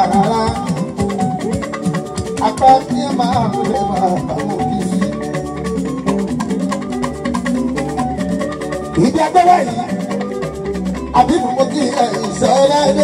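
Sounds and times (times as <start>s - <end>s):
person singing: 0.0s - 1.1s, 11.1s - 13.0s
fast hand percussion: 0.0s - 13.0s
keyboard and guitars: 0.0s - 13.0s.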